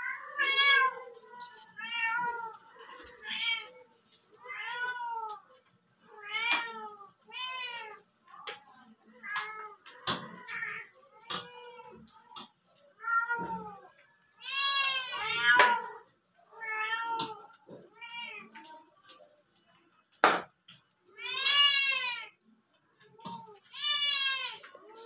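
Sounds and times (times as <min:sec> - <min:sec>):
cat meowing: 0:12.9 - 0:16.0, 0:21.2 - 0:22.4, 0:23.2 - 0:25.0.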